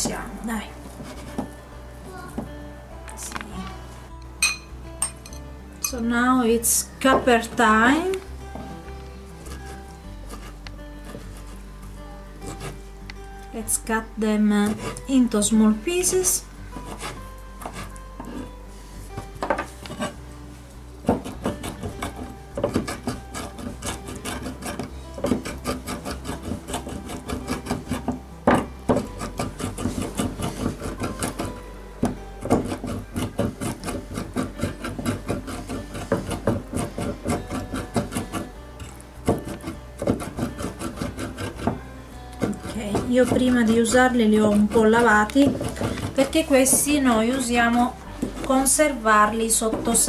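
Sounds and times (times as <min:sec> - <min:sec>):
knife chopping on cutting board: 0:21.0 - 0:23.2, 0:23.8 - 0:38.5, 0:42.4 - 0:47.0.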